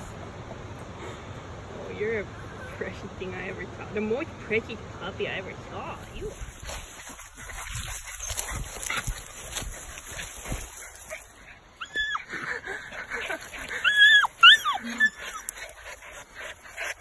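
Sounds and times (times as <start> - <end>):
rustling: 5.6 - 11.8
puppy yipping and whining: 11.8 - 12.5, 13.8 - 15.6.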